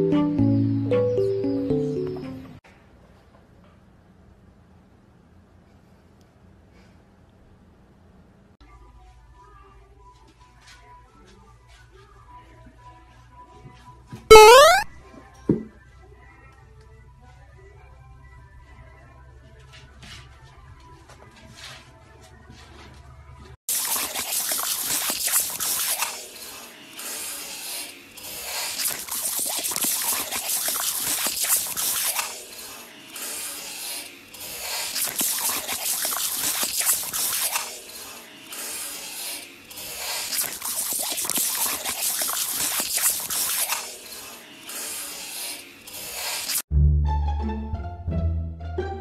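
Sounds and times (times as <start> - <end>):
hose water spattering hiss: 23.7 - 46.7.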